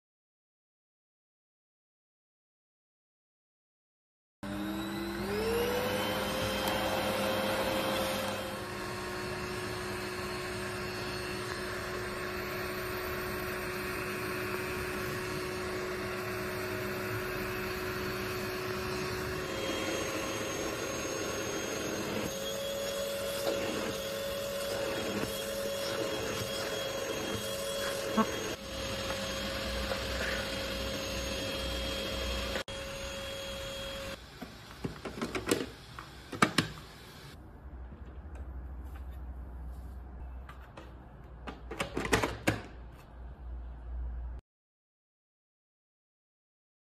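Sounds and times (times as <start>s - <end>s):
grooming vacuum motor whine: 4.4s - 37.4s.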